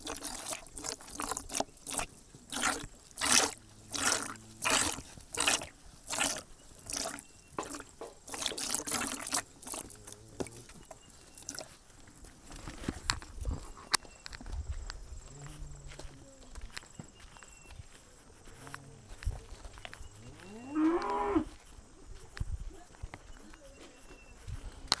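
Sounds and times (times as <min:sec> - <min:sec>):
milk squirting into a container: 0:00.0 - 0:13.4.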